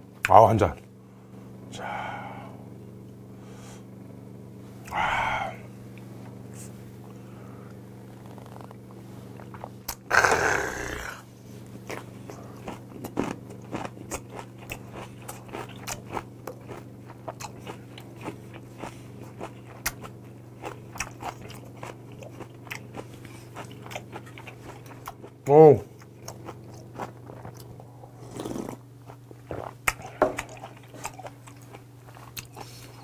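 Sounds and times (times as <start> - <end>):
breathy exhale: 1.8 - 2.7, 3.4 - 3.9, 4.9 - 5.7
crunchy chewing: 8.0 - 33.0.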